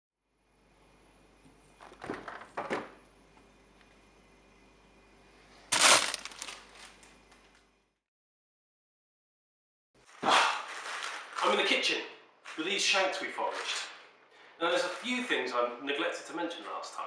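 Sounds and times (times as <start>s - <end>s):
plastic bag crinkling: 5.7s - 7.1s
rustling handling noises: 5.7s - 7.1s.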